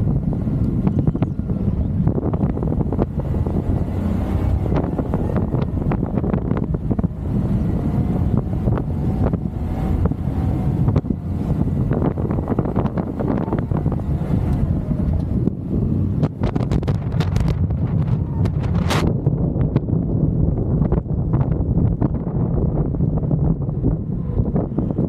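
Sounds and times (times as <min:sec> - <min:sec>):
steady low rumble: 0:00.0 - 0:25.0
wind buffeting microphone: 0:00.0 - 0:25.0.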